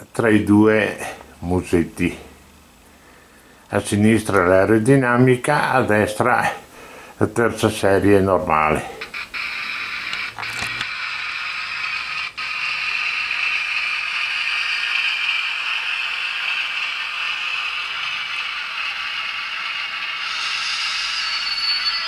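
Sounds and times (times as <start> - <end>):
model train whirring: 9.0 - 22.0.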